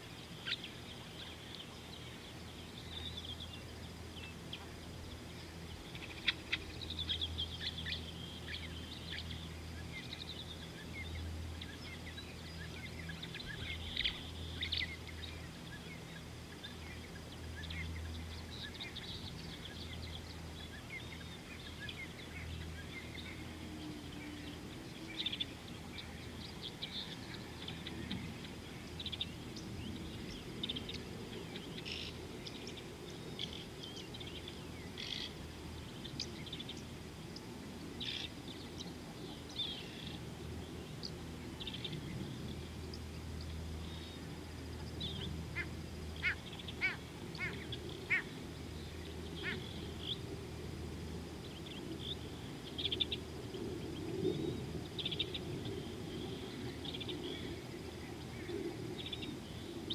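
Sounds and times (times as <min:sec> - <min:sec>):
birds chirping and trilling: 0:00.0 - 0:59.9.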